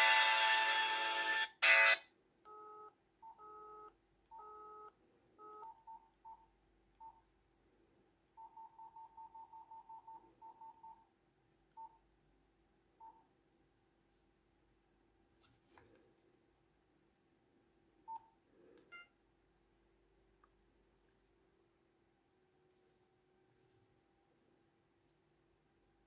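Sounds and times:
phone ringtone: 0.0 - 5.8
phone keypad beeps: 1.6 - 7.2, 8.4 - 11.0, 18.9 - 19.1.

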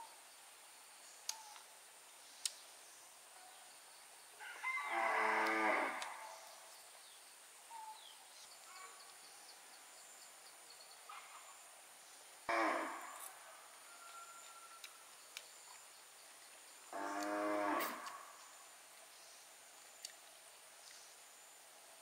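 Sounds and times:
cow mooing: 17.0 - 18.2.

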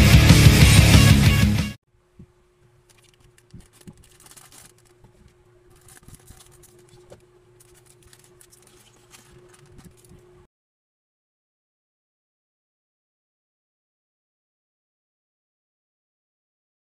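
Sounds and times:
faint steady hum: 1.9 - 10.5
fingers handling plastic figure: 2.2 - 10.3.

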